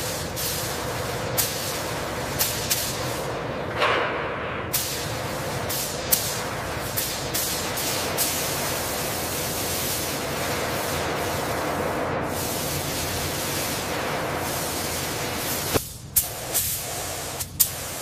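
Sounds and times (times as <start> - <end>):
paint spray gun hissing: 4.8 - 18.0.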